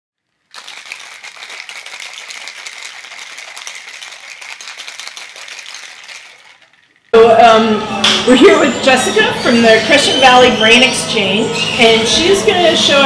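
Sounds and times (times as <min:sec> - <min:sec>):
rattle of small hard clicks: 0:00.4 - 0:07.2.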